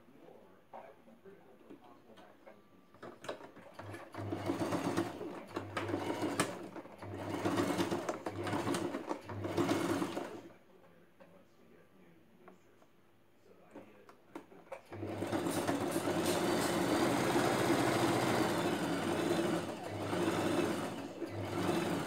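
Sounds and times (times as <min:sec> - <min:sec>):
sewing machine stitching: 0:03.0 - 0:10.5, 0:14.7 - 0:22.0.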